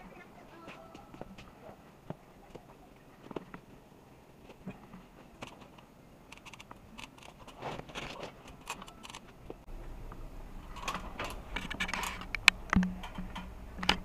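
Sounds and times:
low steady hum: 0.0 - 14.0
equipment clicks and rustling: 4.4 - 9.6, 10.6 - 14.0.

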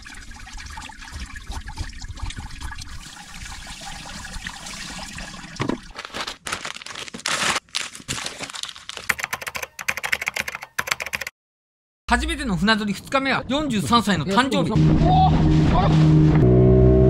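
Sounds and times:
tap water splashing into sink: 3.1 - 5.9.

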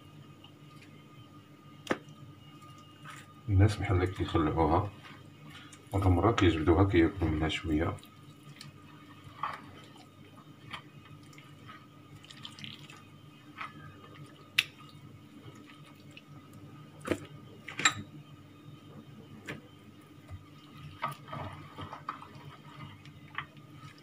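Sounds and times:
wet squelches and drips: 10.7 - 17.8.

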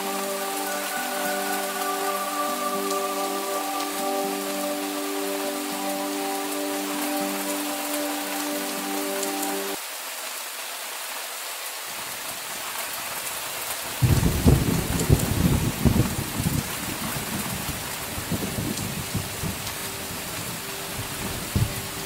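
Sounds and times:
steady rain: 0.0 - 22.0
thunder rumbling: 14.0 - 22.0.

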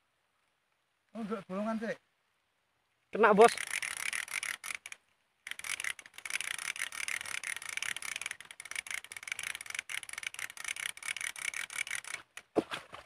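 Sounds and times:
fishing reel ratcheting clicks: 3.5 - 12.6.

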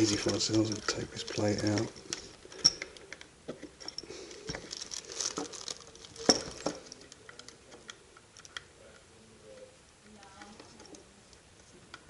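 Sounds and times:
handling rustles: 0.0 - 8.6.

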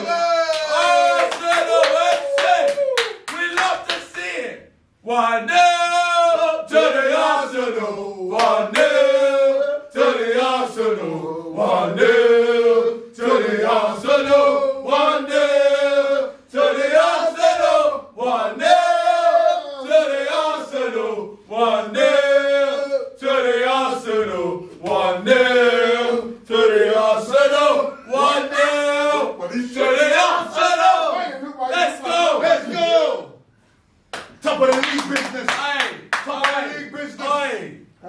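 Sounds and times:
men chanting together: 5.1 - 33.4.

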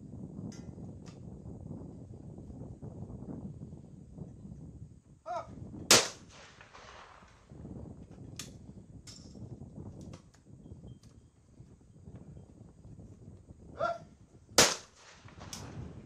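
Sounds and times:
person calling: 5.3 - 5.6, 13.8 - 14.1
shotgun shot echoing: 5.9 - 7.1, 14.6 - 15.6.

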